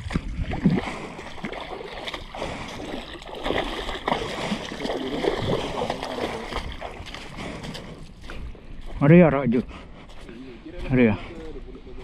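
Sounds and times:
shallow water splashing: 0:00.0 - 0:08.7.

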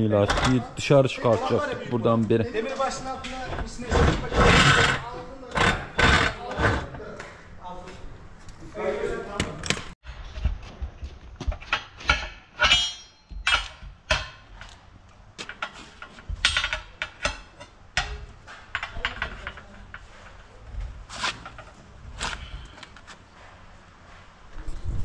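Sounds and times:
tire levers clanking on steel rim: 0:11.5 - 0:14.8, 0:15.4 - 0:20.0.

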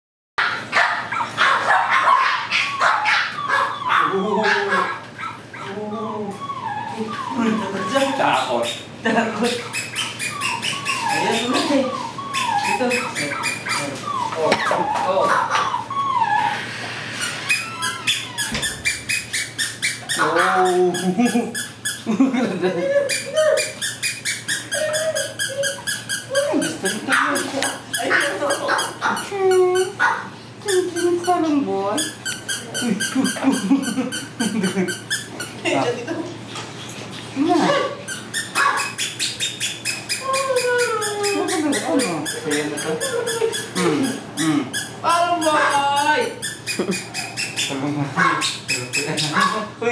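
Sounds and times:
puppies yipping: 0:00.4 - 0:36.0, 0:36.9 - 0:49.9
puppies whining: 0:00.4 - 0:49.9.

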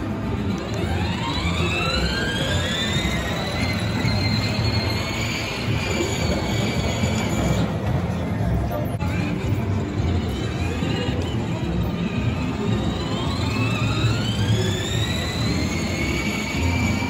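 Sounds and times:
electric motor whining: 0:10.1 - 0:17.0.

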